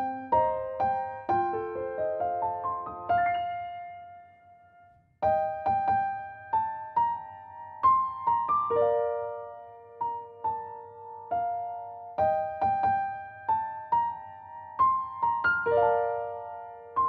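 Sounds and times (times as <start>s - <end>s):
gentle piano music: 0.0s - 17.0s.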